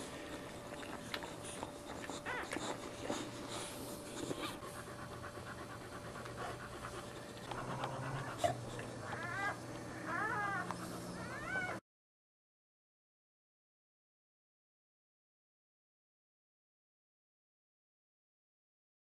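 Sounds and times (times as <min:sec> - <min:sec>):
dog panting: 0:00.0 - 0:11.8
puppies squeaking and whimpering: 0:00.2 - 0:05.8, 0:06.4 - 0:11.8.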